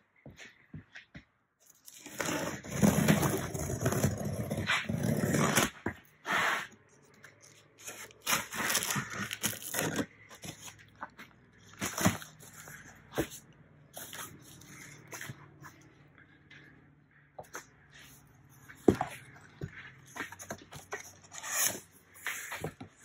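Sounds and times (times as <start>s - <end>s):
packing tape pulling apart: 7.8s - 10.1s.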